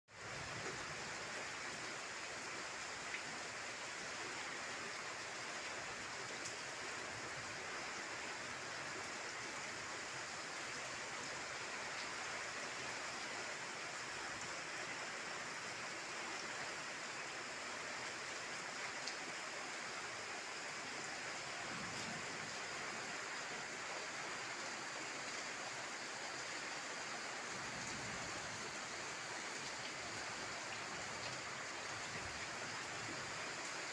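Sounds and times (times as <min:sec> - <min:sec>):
heavy rain falling: 0:00.1 - 0:33.9.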